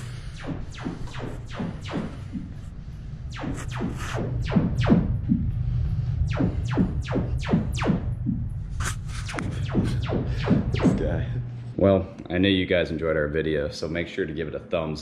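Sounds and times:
steady low rumble: 0.0 - 13.8.

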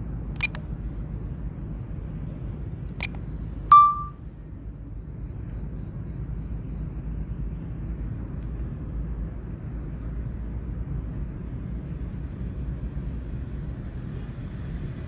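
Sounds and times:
electronic chime: 3.7 - 4.2.

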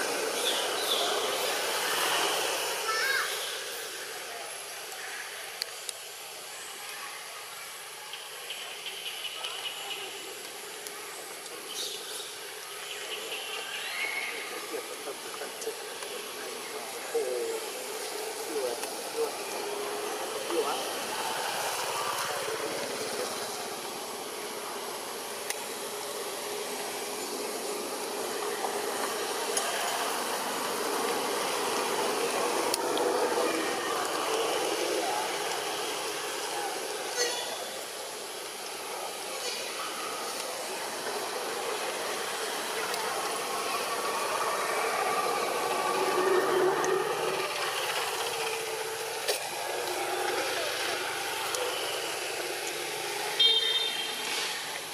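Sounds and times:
outdoor background hiss: 0.0 - 54.9.

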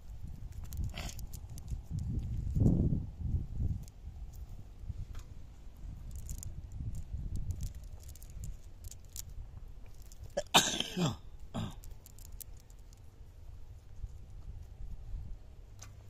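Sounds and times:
cast net crackling: 3.6 - 14.2
person coughing: 10.4 - 11.8.

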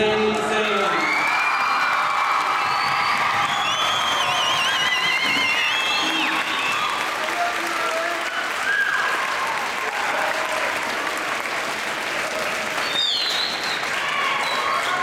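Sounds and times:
audience applauding: 0.5 - 15.0
high whoop: 0.9 - 7.2, 8.4 - 10.8.

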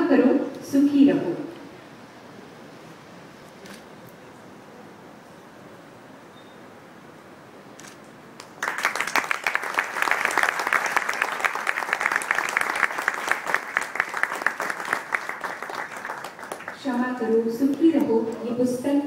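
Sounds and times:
audience applauding: 8.4 - 17.5.

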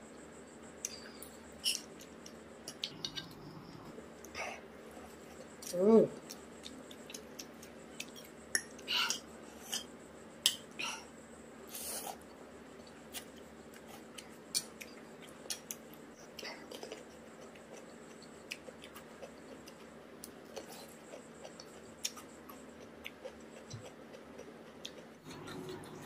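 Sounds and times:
wet chewing: 13.1 - 26.0.

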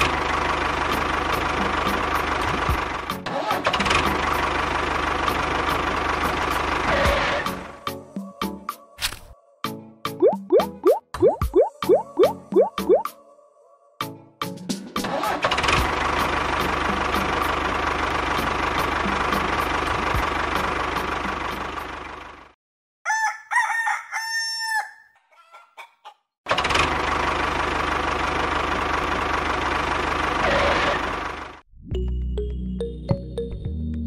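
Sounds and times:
tractor motor running: 0.0 - 7.7, 15.2 - 22.5, 26.5 - 31.6
rooster crowing: 23.0 - 26.1.

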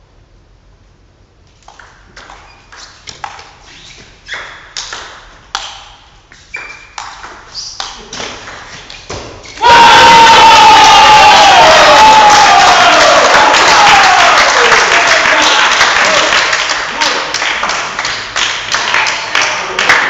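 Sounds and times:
crowd cheering: 9.6 - 20.0.

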